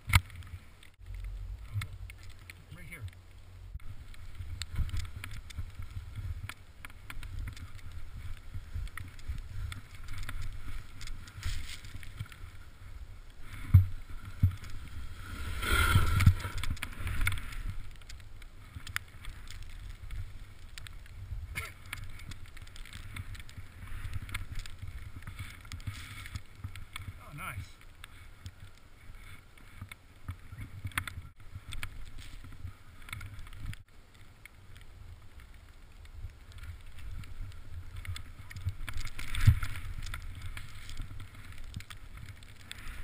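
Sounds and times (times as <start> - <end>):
wind rumbling on microphone: 0.0 - 43.0.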